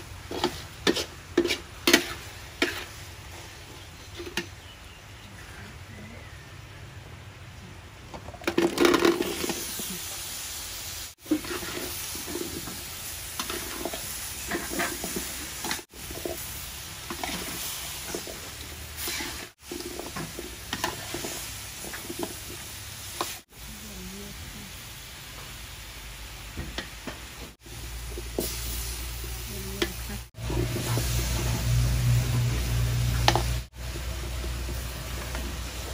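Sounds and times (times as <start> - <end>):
liquid bubbling and sizzling: 0.0 - 5.2, 7.5 - 35.9
metal spatula scraping a wok: 0.1 - 4.5, 11.2 - 23.4.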